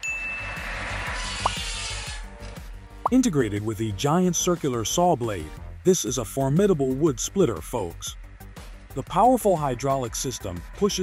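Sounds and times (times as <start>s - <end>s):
short high chime: 0.0s - 0.8s
hiss: 0.6s - 2.2s
background music with low beat: 1.4s - 11.0s.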